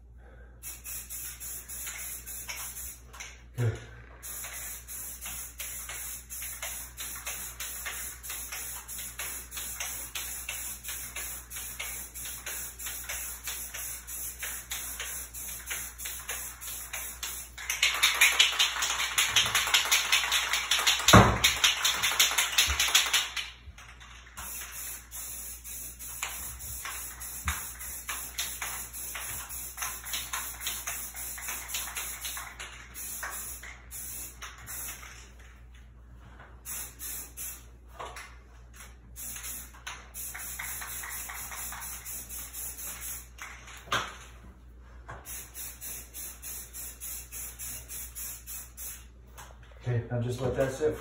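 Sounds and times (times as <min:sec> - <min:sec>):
aerosol spray can hissing: 0:00.6 - 0:03.2, 0:04.2 - 0:23.5, 0:24.4 - 0:35.2, 0:36.6 - 0:37.7, 0:39.2 - 0:43.4, 0:45.2 - 0:49.1
short spray spurts and taps: 0:00.6 - 0:03.4, 0:04.2 - 0:35.4, 0:36.6 - 0:44.3, 0:45.1 - 0:49.6.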